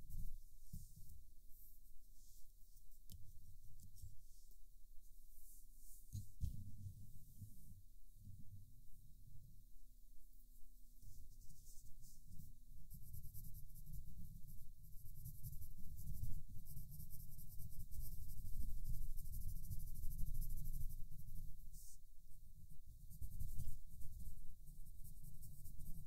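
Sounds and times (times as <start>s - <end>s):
pencil scratching on paper: 11.1s - 22.0s, 22.6s - 26.0s.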